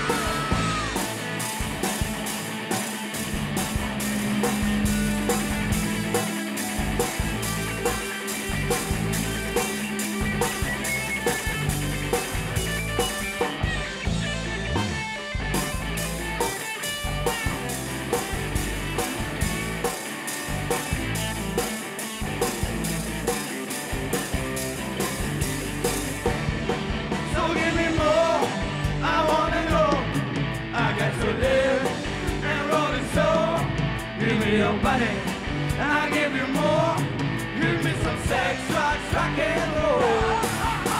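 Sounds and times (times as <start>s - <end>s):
man singing: 0.0s - 1.0s, 27.2s - 40.9s
electric guitar: 0.0s - 40.9s
steady drum beat: 0.0s - 40.9s.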